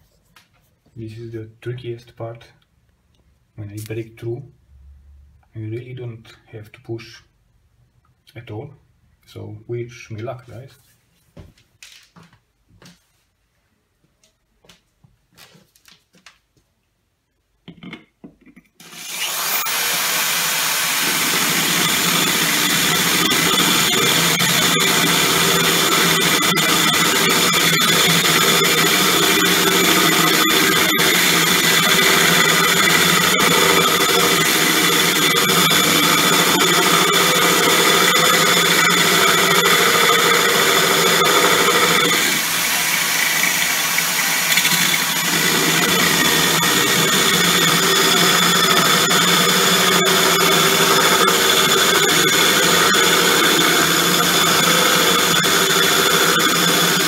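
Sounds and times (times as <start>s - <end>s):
electric drill grinding glass: 18.8s - 57.0s.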